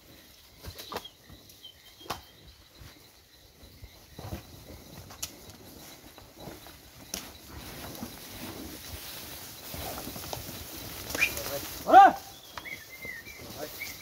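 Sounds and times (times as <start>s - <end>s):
hooves knocking and shuffling: 0.0s - 14.0s
faint high chirp: 12.3s - 14.0s.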